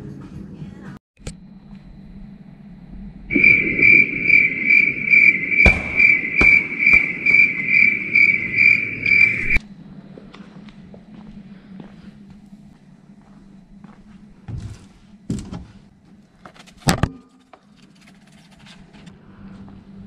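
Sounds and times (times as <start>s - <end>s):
cricket chirping: 3.3s - 9.6s.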